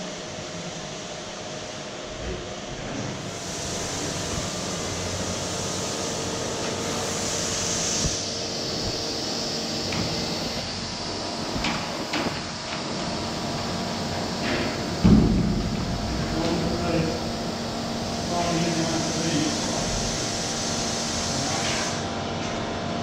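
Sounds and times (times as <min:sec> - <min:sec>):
workshop machinery hum and hiss: 0:00.0 - 0:23.0
sharp knocks: 0:15.0 - 0:16.6.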